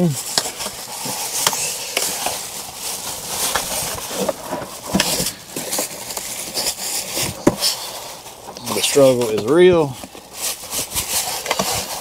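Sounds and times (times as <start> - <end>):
plastic wrapping rustling: 0.0 - 12.0
cardboard box scraping and knocking: 3.1 - 8.1.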